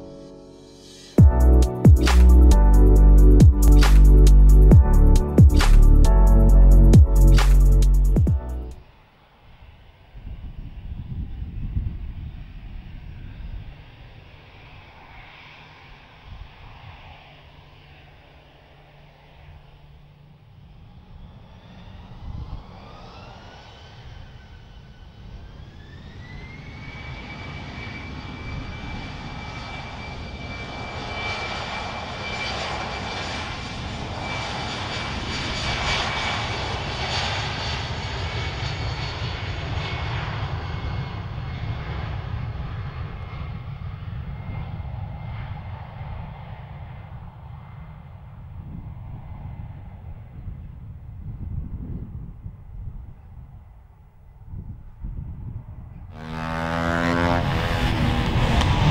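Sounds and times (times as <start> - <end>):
jet engines spooling up: 0.1 - 8.8, 13.0 - 41.3, 56.2 - 58.9.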